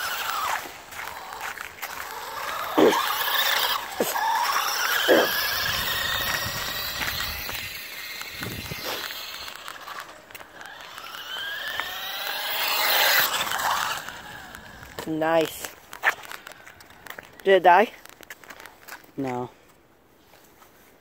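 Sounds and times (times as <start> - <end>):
rc car motor whining: 0.0 - 16.6.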